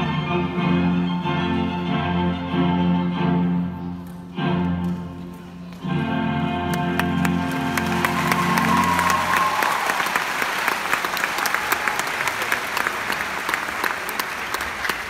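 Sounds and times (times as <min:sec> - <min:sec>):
audience applause: 0:06.7 - 0:15.0.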